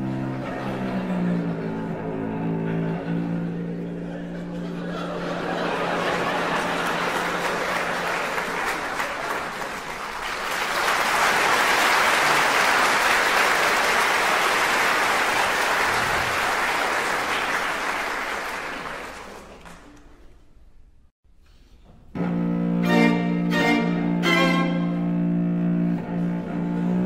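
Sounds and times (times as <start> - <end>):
audience applauding: 4.3 - 20.2.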